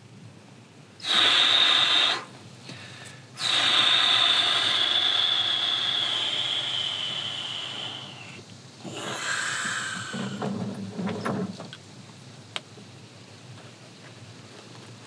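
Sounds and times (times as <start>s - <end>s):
man's whistling breaths: 1.0s - 10.6s.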